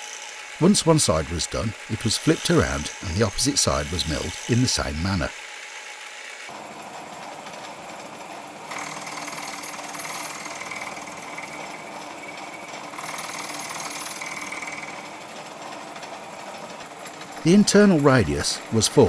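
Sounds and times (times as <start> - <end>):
milling machine cutting metal: 0.0 - 19.0
high cutting whine: 0.6 - 5.4.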